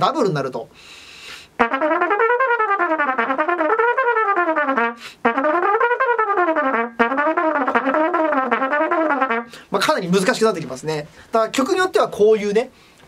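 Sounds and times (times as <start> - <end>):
player breathing: 0.7 - 1.6, 5.0 - 5.2, 9.5 - 9.7
trumpet double tonguing: 1.6 - 9.6.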